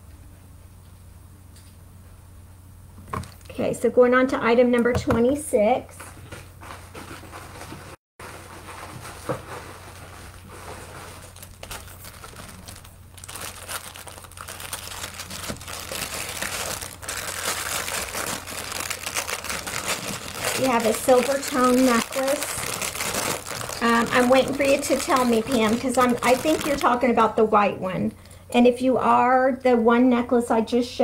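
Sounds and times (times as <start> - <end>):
plastic packaging crinkling: 3.2 - 3.6, 8.2 - 27.2.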